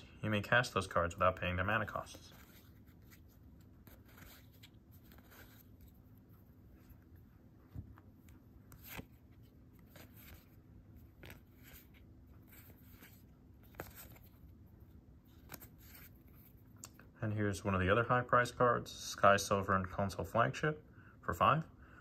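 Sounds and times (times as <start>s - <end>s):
cards rustling and sliding: 1.8s - 16.8s.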